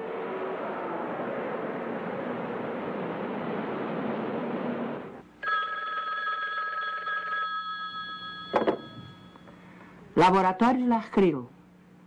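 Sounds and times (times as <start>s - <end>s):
telephone bell ringing: 5.4s - 9.6s
telephone handset knocks: 8.5s - 9.0s.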